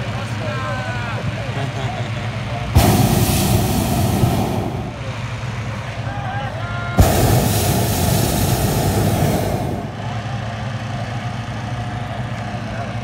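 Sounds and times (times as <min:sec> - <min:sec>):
propane burner blast: 0:02.7 - 0:06.0, 0:06.9 - 0:10.4
steady low hum: 0:02.8 - 0:06.0, 0:07.0 - 0:10.2.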